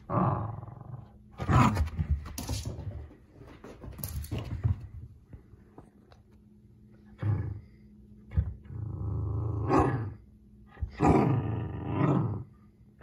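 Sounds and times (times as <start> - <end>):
puppy growling: 0.0 - 1.9, 8.4 - 10.2, 10.8 - 12.5.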